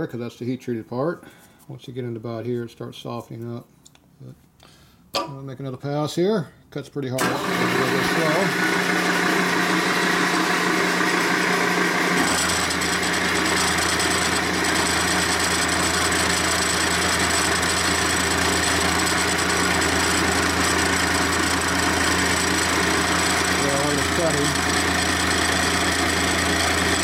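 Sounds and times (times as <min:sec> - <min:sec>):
milling machine cutting steel: 0:07.2 - 0:09.2, 0:12.1 - 0:27.0.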